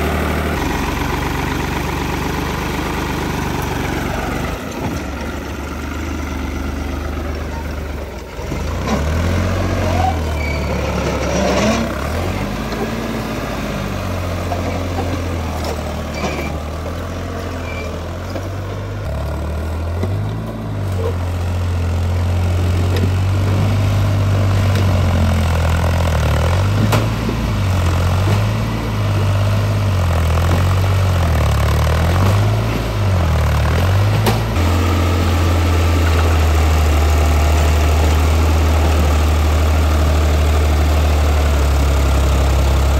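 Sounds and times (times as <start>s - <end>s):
diesel engine running: 0.0s - 42.9s.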